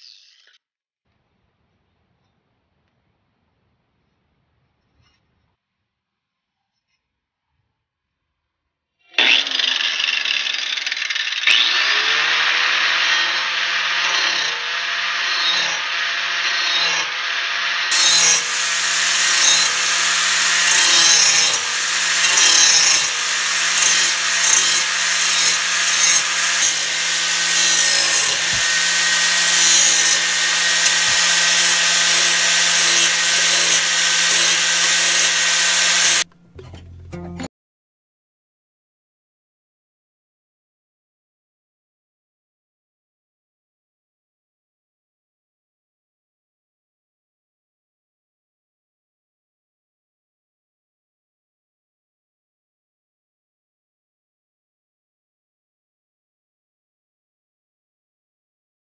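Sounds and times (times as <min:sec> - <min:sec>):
angle grinder grinding metal: 0:09.1 - 0:37.5.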